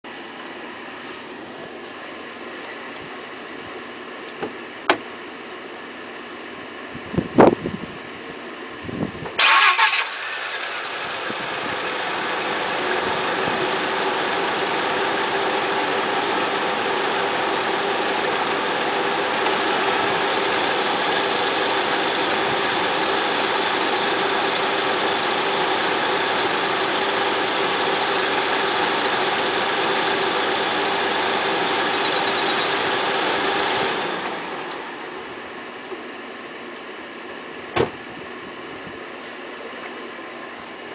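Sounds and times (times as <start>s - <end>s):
car engine starting: 9.3s - 35.9s
car engine idling: 9.4s - 40.9s.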